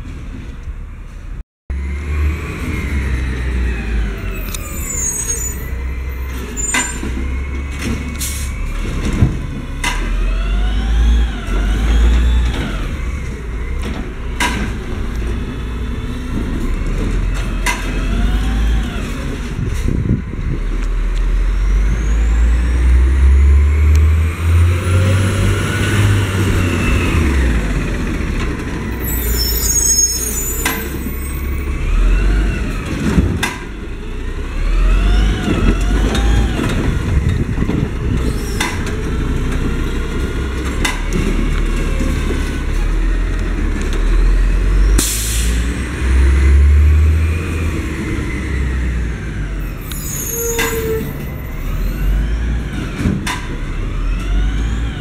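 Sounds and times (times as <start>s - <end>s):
garbage truck engine revving: 1.7s - 55.0s
trash cart clanking: 4.4s - 10.2s, 32.6s - 45.2s.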